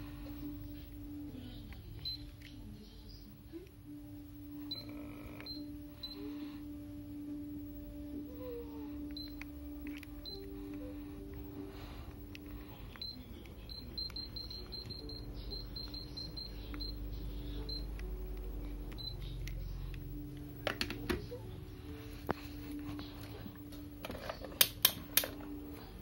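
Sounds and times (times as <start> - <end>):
faint steady hum: 0.0 - 26.0
fan control panel beeps: 2.0 - 2.4, 4.6 - 6.3, 9.0 - 10.6, 12.3 - 18.1, 18.9 - 19.6.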